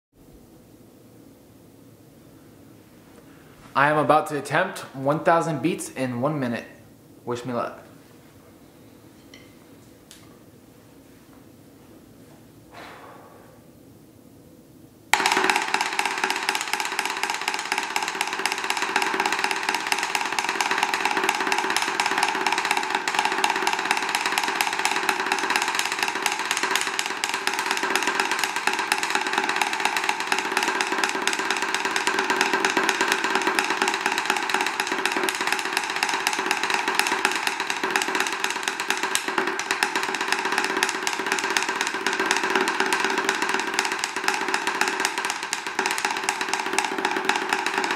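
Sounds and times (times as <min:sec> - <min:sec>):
drumstick roll on practice pad: 0:15.1 - 0:47.9.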